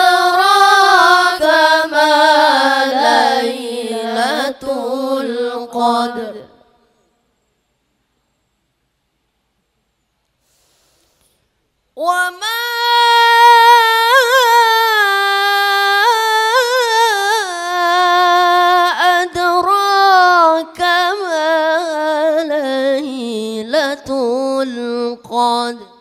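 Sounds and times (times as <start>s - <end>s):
boy reciting melodically: 0.0s - 6.6s, 12.0s - 26.0s.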